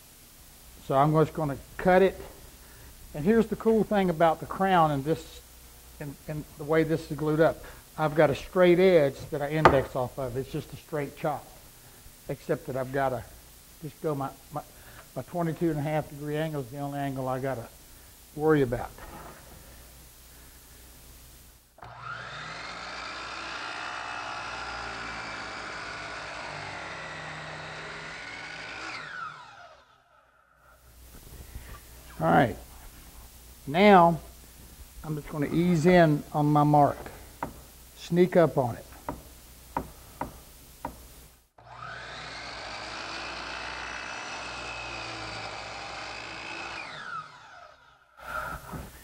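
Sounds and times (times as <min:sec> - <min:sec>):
saw blade cutting wood: 0:09.6 - 0:10.0, 0:41.6 - 0:47.6
miter saw motor whine: 0:21.8 - 0:30.0, 0:41.6 - 0:48.0.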